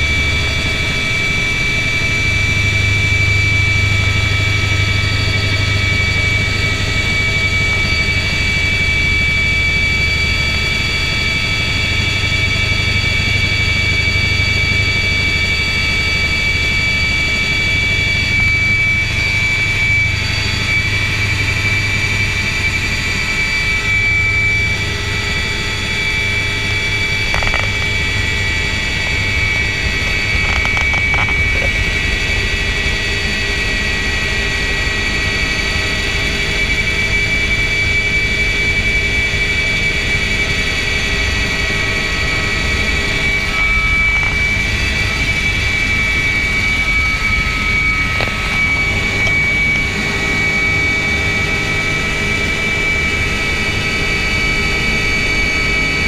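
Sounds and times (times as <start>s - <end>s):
helicopter low rumble: 0.0s - 56.0s
high-pitched turbine whine: 0.0s - 56.0s.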